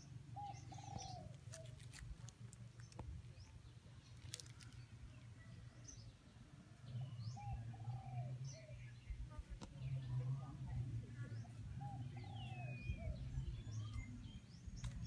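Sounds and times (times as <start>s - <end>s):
low steady hum: 0.0s - 15.0s
small birds chirping: 0.0s - 15.0s
dove cooing: 0.3s - 1.8s, 7.0s - 8.9s, 11.4s - 13.8s.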